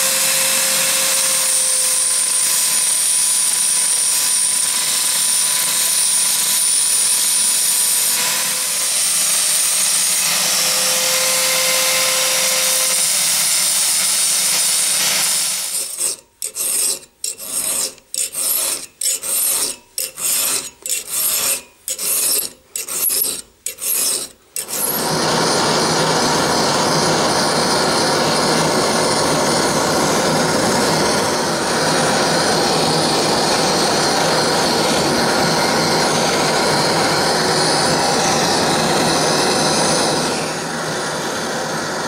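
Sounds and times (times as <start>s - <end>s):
hand file on steel: 0.0s - 25.2s.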